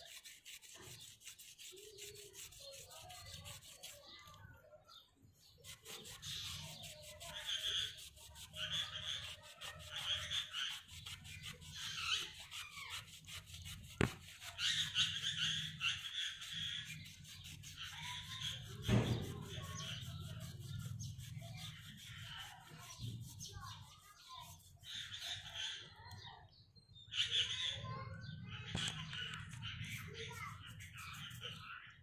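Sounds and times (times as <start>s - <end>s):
cloth scrubbing metal rim: 0.0s - 4.2s, 5.4s - 25.2s
knock: 18.8s - 19.6s.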